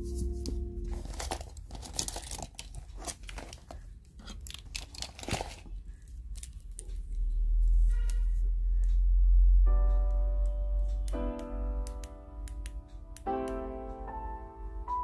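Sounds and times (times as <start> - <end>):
plastic pouch crinkling: 0.9 - 6.9.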